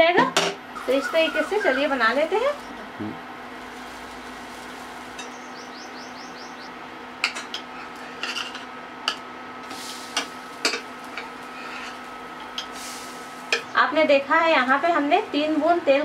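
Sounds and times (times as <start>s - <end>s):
steady hiss: 9.6s - 15.8s
metal spatula scraping a pan: 11.6s - 12.0s.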